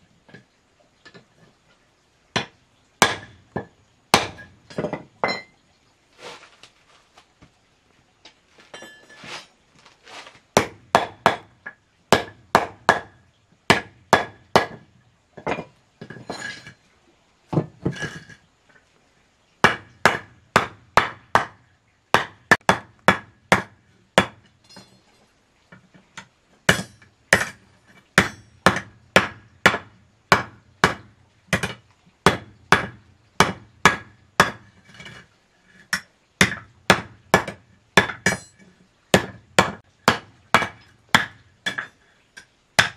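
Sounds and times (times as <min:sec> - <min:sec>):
hammer striking steel rods: 0:02.4 - 0:05.5, 0:28.2 - 0:34.6, 0:35.9 - 0:38.6, 0:39.2 - 0:42.9.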